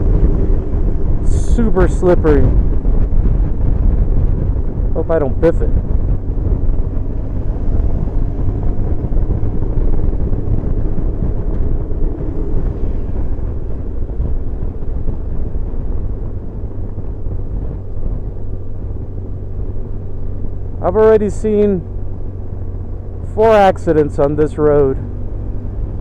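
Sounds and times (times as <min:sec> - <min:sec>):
motorcycle engine droning: 0:00.0 - 0:26.0
rushing wind: 0:00.0 - 0:26.0.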